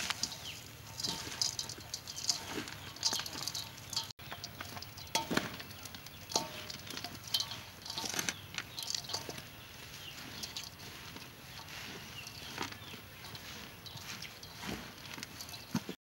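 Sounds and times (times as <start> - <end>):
wooden spoon knocking metal bowl: 0.0 - 10.8
crisp rustling of mango strips: 0.0 - 16.0.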